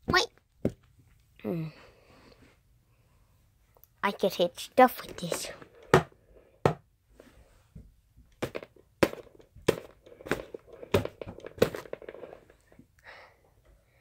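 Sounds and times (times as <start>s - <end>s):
plastic toy wand knocking: 8.4s - 12.0s.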